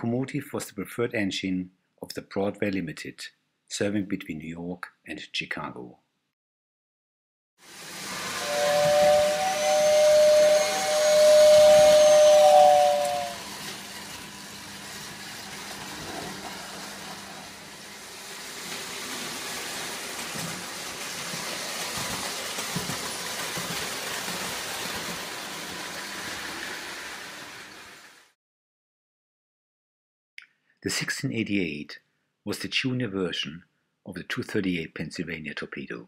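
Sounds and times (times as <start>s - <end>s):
toy trains rolling on track: 7.6s - 28.3s
toy train whistle: 7.7s - 16.6s.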